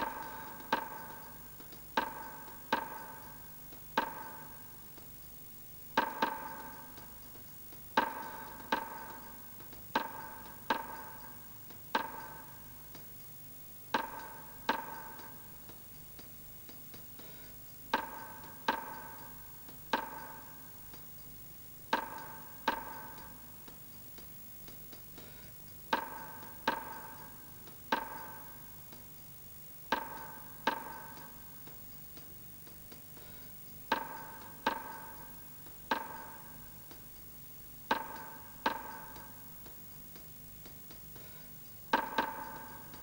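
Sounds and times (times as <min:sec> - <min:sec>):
percussive film music: 0:00.0 - 0:13.2, 0:13.9 - 0:16.8, 0:17.9 - 0:21.3, 0:21.9 - 0:24.2, 0:25.8 - 0:29.0, 0:29.9 - 0:31.8, 0:32.7 - 0:37.2, 0:37.8 - 0:40.2, 0:40.8 - 0:43.0.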